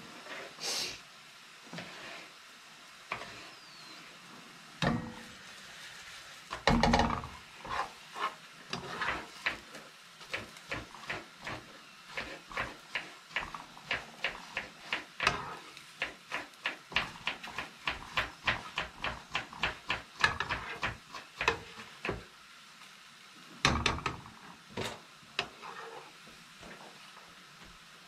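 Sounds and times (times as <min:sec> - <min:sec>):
metal spoon tapping frying pan: 0:10.3 - 0:22.2.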